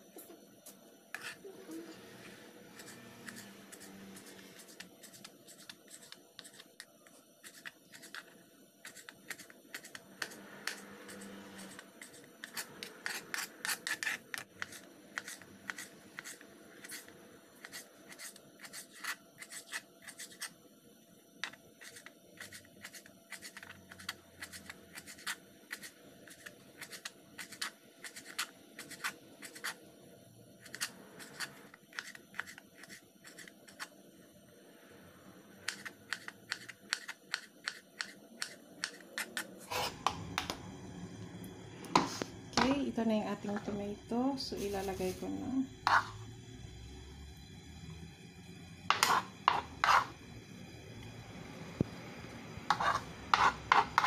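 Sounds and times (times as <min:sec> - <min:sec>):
knife scraping: 0:01.1 - 0:01.5, 0:02.2 - 0:20.5, 0:21.4 - 0:29.8, 0:30.6 - 0:33.9, 0:35.7 - 0:40.1, 0:45.8 - 0:46.2, 0:48.9 - 0:50.2, 0:52.7 - 0:54.0.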